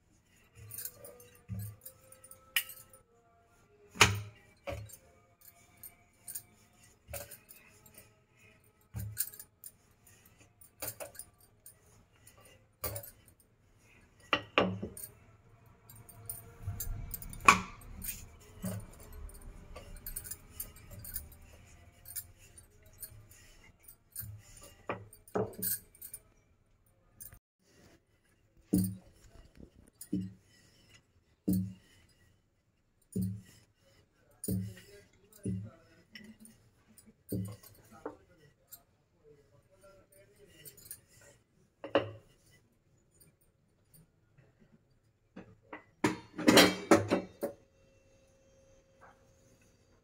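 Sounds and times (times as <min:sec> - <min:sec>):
glass bangles clinking: 0:00.2 - 0:03.2, 0:03.8 - 0:27.4, 0:28.7 - 0:32.3, 0:33.0 - 0:42.4.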